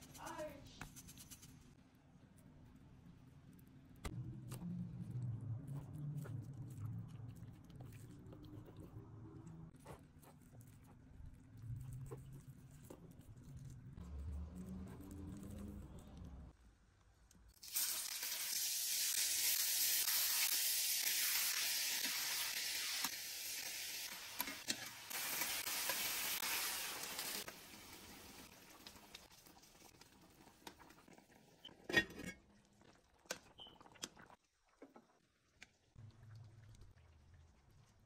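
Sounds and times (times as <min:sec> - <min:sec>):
meat sizzling in hot oil: 0:17.6 - 0:30.5.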